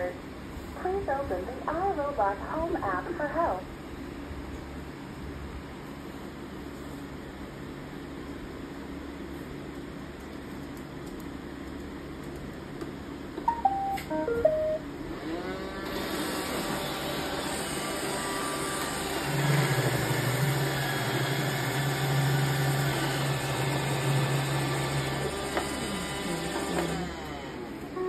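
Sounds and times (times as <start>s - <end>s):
electronic beeps tune: 13.5s - 14.8s
robot vacuum motors whirring: 15.3s - 27.7s.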